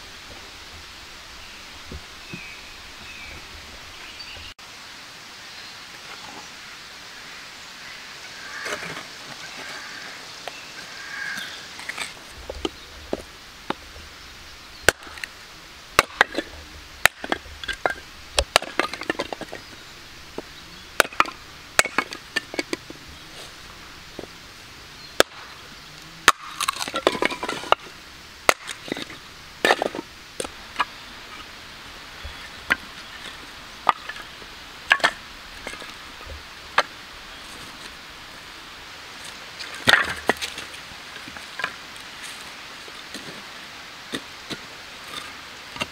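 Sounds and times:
split wood pieces knocking: 0:14.8 - 0:15.3, 0:16.0 - 0:23.0, 0:25.2 - 0:25.5, 0:26.2 - 0:30.9, 0:34.9 - 0:36.9, 0:39.7 - 0:40.7
hatchet chopping wood: 0:14.9 - 0:15.3, 0:16.0 - 0:19.6, 0:21.0 - 0:22.8, 0:25.2 - 0:25.5, 0:26.2 - 0:27.8, 0:28.4 - 0:30.6.

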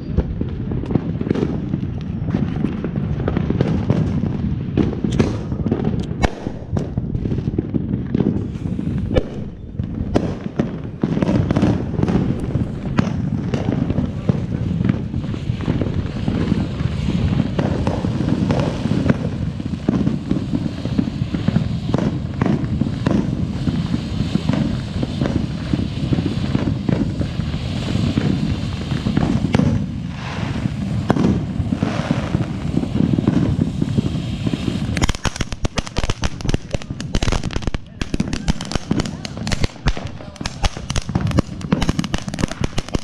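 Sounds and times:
firework fountain hissing sparks: 0:00.0 - 0:43.0
rapid crackling pops: 0:34.6 - 0:43.0.

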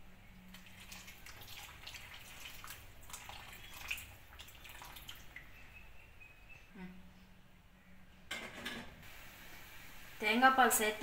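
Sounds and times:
curry bubbling: 0:00.4 - 0:05.6
liquid trickle and splash: 0:00.5 - 0:05.5.

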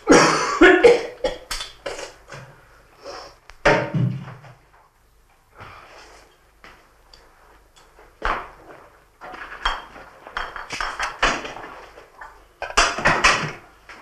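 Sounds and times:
glass bottles clinking: 0:09.7 - 0:11.1.

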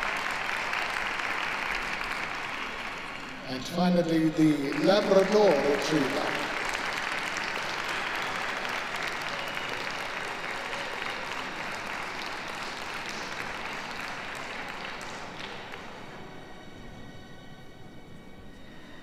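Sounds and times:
audience applauding: 0:00.0 - 0:16.5
faint music: 0:00.0 - 0:19.0.

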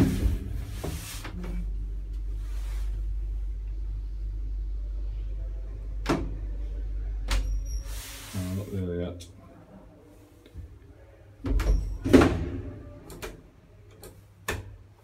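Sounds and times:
lift rumbling: 0:00.0 - 0:08.6.

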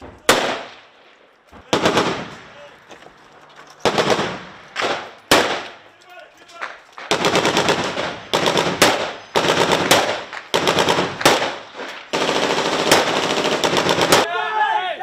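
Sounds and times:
automatic rifle bursts: 0:06.6 - 0:14.2.

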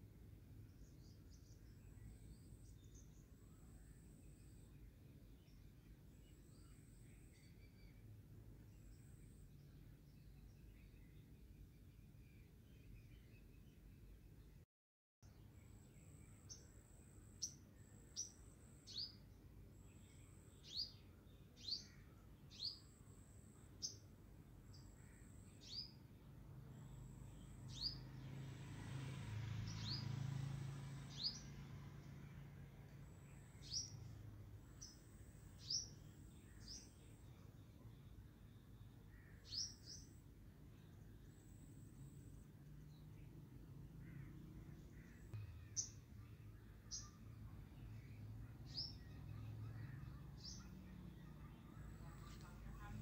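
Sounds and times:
small bird chirping: 0:15.2 - 0:28.4, 0:29.6 - 0:30.2, 0:31.0 - 0:53.0.

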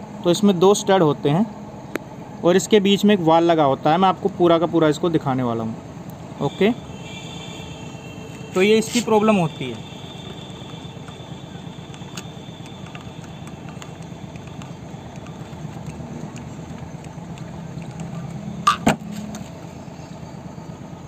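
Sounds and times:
sharp clicks: 0:10.2 - 0:18.4.

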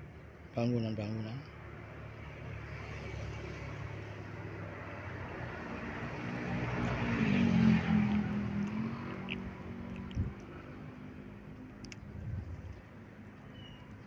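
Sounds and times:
vehicle engine passing by: 0:02.1 - 0:13.2.

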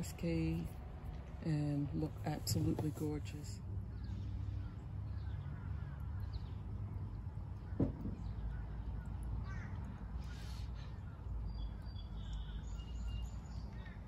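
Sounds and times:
birds chirping: 0:03.8 - 0:14.0.

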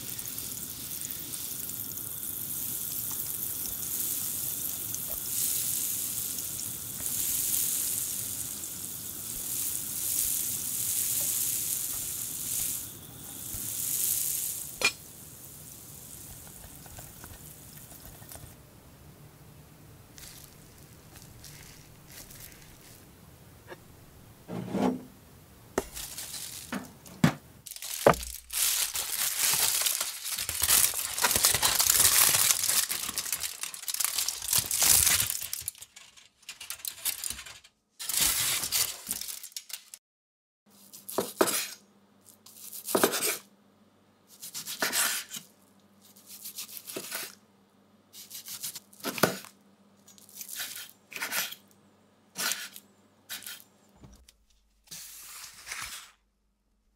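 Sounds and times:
crackling noise: 0:00.0 - 0:18.6, 0:20.0 - 0:24.5, 0:25.7 - 0:40.0
aluminium foil crinkling: 0:20.1 - 0:23.1, 0:25.8 - 0:40.0, 0:50.0 - 0:51.6
kitchen knocks: 0:26.7 - 0:27.5.

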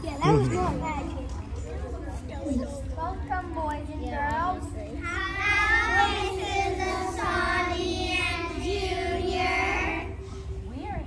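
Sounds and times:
children singing in chorus: 0:05.1 - 0:10.2.

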